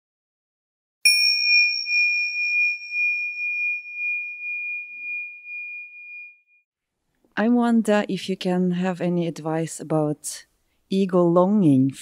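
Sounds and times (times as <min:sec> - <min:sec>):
bell-like chime: 0:01.1 - 0:06.6.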